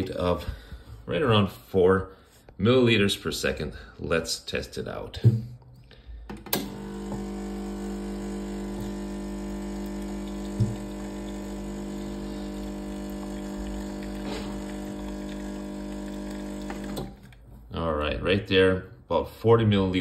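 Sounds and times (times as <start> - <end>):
espresso machine pump humming: 6.6 - 17.3
water flowing into a cup: 6.8 - 17.4.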